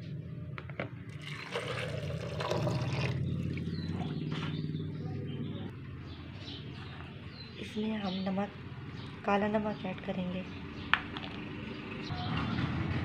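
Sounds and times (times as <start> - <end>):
water pouring into plastic jar: 1.1 - 3.2.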